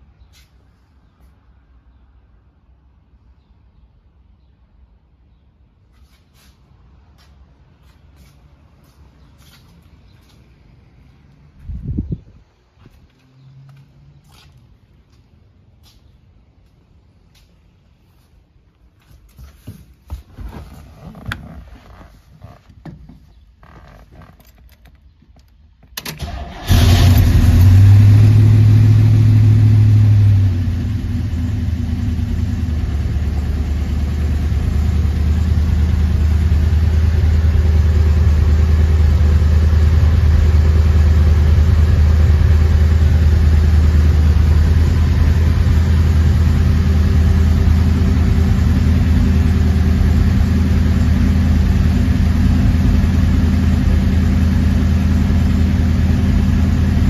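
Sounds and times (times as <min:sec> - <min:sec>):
car engine cranking: 0:21.2 - 0:29.6
car engine idling: 0:21.3 - 0:57.0.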